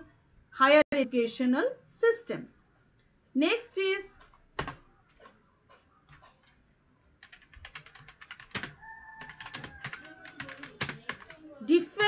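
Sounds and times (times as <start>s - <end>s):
typing on keyboard: 4.2s - 6.6s, 7.2s - 11.5s.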